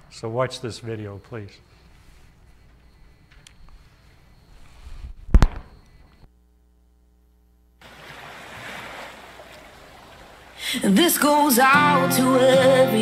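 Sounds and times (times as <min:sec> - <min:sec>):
loud sharp thump: 0:05.3 - 0:05.8
ocean surf waves breaking: 0:07.8 - 0:11.8.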